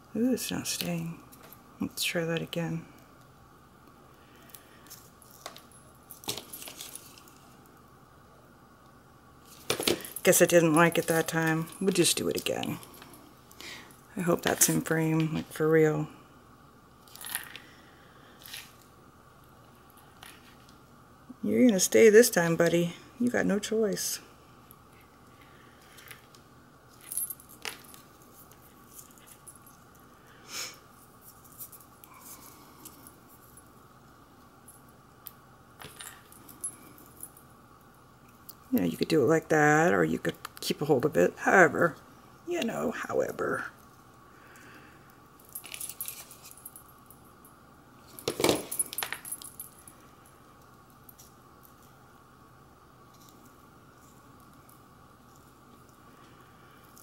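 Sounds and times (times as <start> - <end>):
faint metallic jingle: 45.4 - 52.0.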